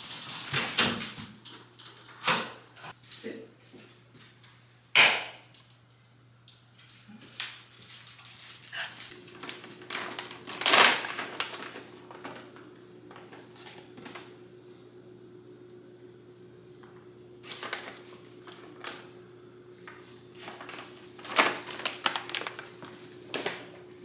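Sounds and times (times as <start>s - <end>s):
plastic bag rustling: 7.3s - 14.2s, 17.4s - 19.2s, 19.8s - 23.9s.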